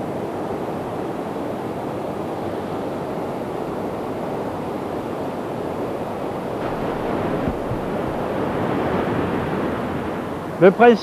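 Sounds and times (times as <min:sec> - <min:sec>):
stream rushing over rocks: 0:06.0 - 0:11.0.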